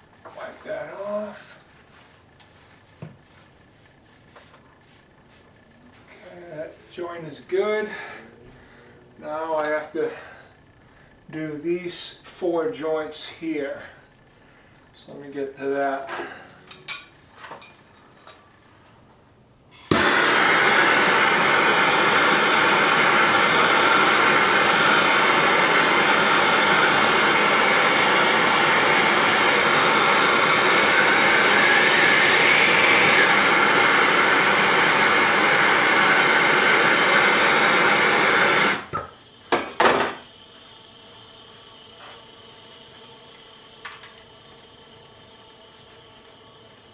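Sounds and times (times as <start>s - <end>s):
gas torch flame hissing: 19.7s - 46.9s.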